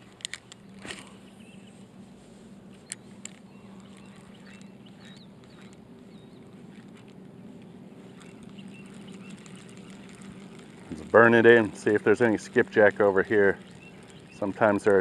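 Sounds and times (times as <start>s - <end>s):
fishing reel clicks: 2.8s - 5.8s, 8.1s - 15.0s
fishing reel whirring: 2.8s - 15.0s.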